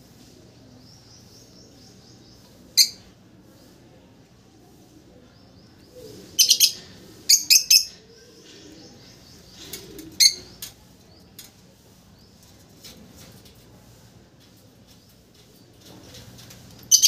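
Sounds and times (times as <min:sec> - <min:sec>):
lovebird chirping: 0:06.4 - 0:08.0.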